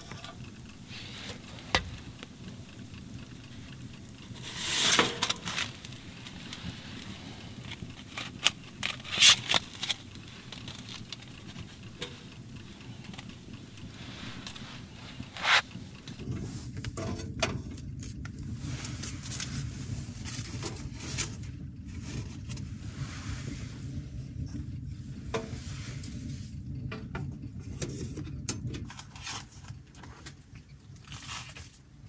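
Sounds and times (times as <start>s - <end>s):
wood fire crackling: 0.0s - 32.0s
wood being handled: 3.8s - 16.2s.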